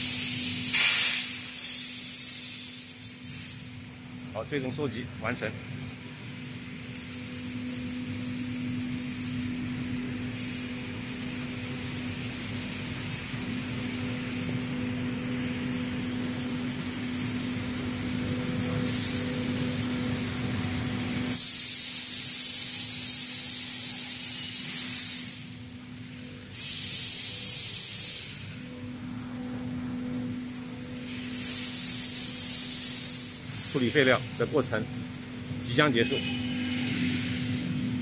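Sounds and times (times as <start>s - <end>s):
compressed gas hissing blasts: 0.0s - 2.5s, 3.2s - 3.7s, 18.8s - 19.4s, 21.3s - 28.7s, 31.0s - 34.2s
machine hum: 28.4s - 38.0s.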